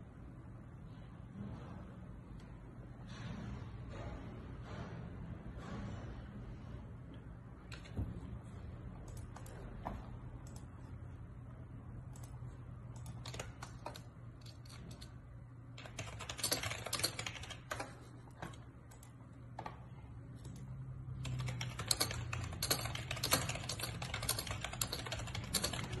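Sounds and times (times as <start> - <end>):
steady low hum: 0.0 - 26.0
typing on computer keyboard: 12.1 - 15.1, 15.8 - 19.7, 20.4 - 26.0.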